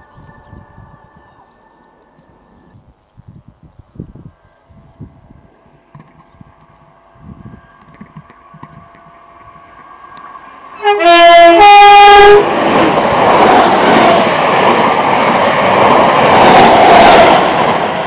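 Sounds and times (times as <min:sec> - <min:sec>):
train wheels running on rails: 0:04.3 - 0:18.0
two-tone train horn: 0:10.7 - 0:12.5.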